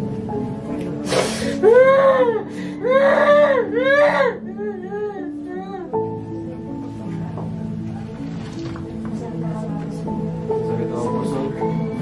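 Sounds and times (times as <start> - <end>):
background music sustained notes: 0.0 - 12.0
woman crying and wailing: 1.6 - 6.0.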